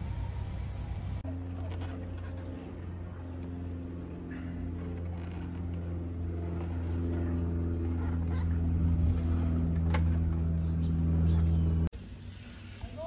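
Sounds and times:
aerial tram cable drone: 0.0 - 13.0.

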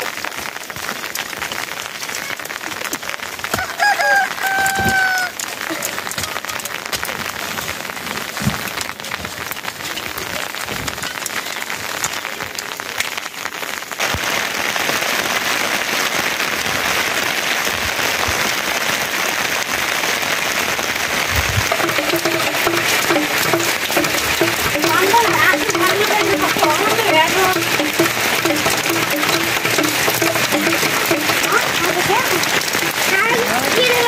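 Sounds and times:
steady rain falling: 0.0 - 34.0.

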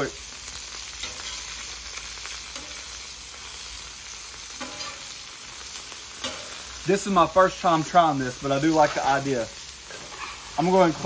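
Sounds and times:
bacon sizzling on griddle: 0.0 - 11.0
metal spatula scraping: 1.0 - 1.6, 2.5 - 3.0, 4.6 - 5.2, 6.2 - 6.6, 9.8 - 11.0.

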